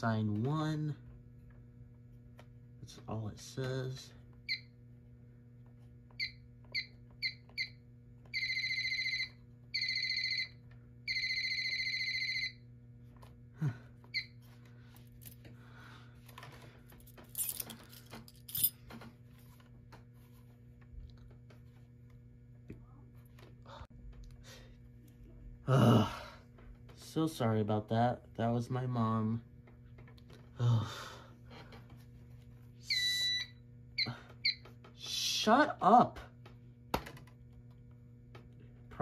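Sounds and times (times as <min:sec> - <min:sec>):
low electrical hum: 0:00.0 - 0:39.0
high-pitched alarm beeps: 0:32.8 - 0:34.6.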